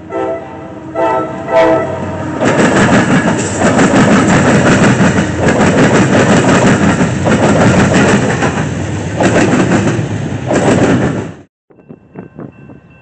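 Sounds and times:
diesel locomotives rumbling: 0:00.0 - 0:13.0
train wheels clicking over rails: 0:02.4 - 0:11.5.

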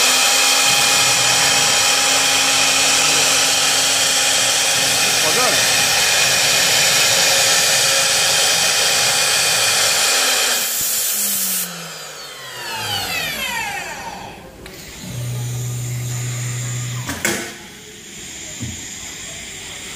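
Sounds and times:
router spindles whining: 0:00.0 - 0:17.2.

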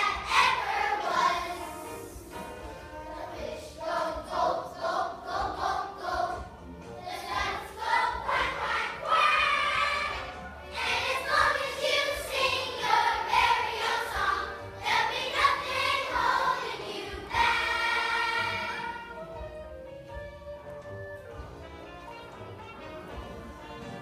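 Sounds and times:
children's choir singing: 0:00.0 - 0:19.2.

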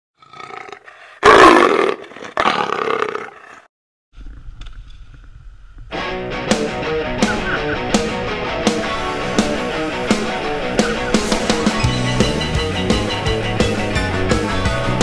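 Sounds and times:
music with steady beat: 0:05.9 - 0:15.0.

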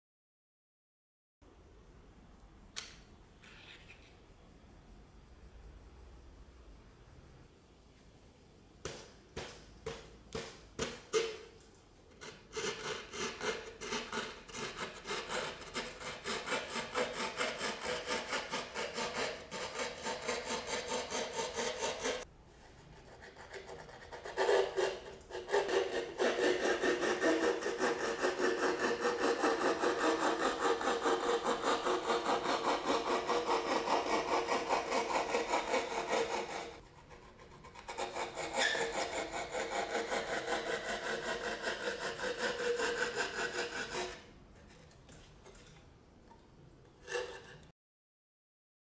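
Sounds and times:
handsaw cutting drywall: 0:12.2 - 0:22.3, 0:23.0 - 0:44.3, 0:47.0 - 0:47.7.

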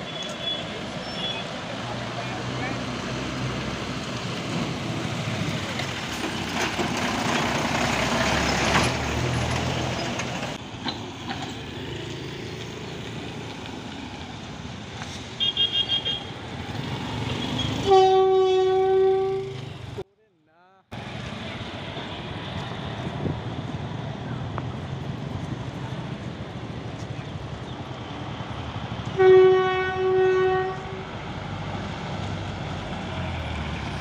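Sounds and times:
motorbike and road traffic: 0:00.0 - 0:20.1, 0:20.9 - 0:34.0
locomotive horn: 0:15.4 - 0:16.4, 0:17.3 - 0:20.0, 0:29.1 - 0:31.1.

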